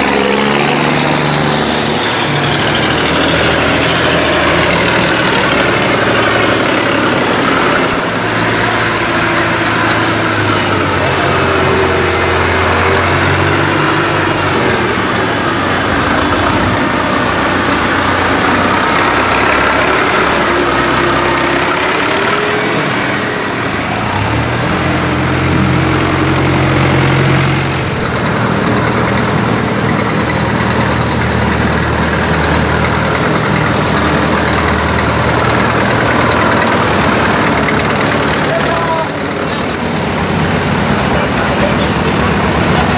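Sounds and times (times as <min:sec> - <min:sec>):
diesel tractors driving past: 0:00.0 - 0:42.9.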